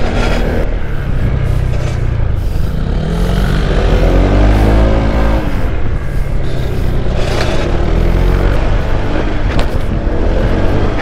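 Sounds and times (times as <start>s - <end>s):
scooter engine revving: 0.0s - 11.0s
wind rush on microphone: 0.0s - 11.0s.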